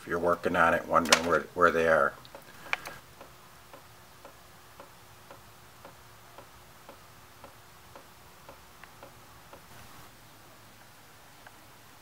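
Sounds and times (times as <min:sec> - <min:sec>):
faint steady ticking: 0:02.0 - 0:10.2.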